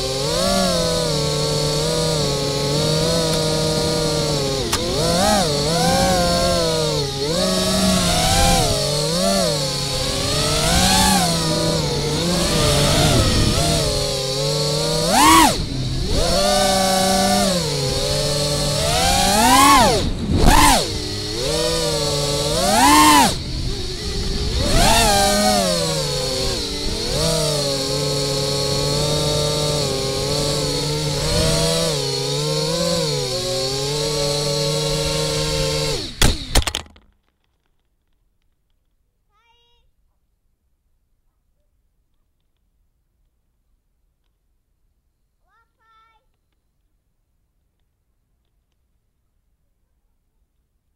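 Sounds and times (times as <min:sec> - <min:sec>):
drone motors whining: 0:00.0 - 0:36.8.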